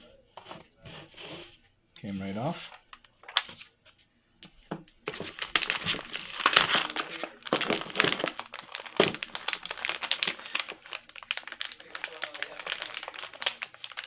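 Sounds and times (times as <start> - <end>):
plastic bag crinkling: 5.1 - 14.0.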